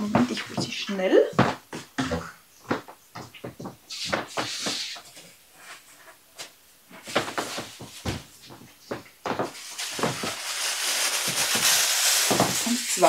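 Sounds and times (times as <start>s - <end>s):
footsteps and handling knocks: 0.0s - 10.3s
close rustle: 9.6s - 13.0s.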